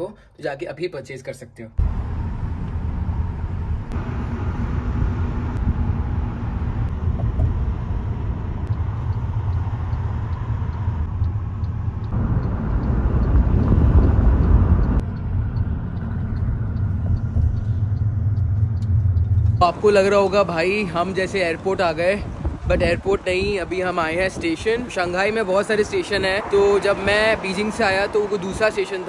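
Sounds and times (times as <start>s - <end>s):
car road and engine rumble: 1.8s - 29.0s.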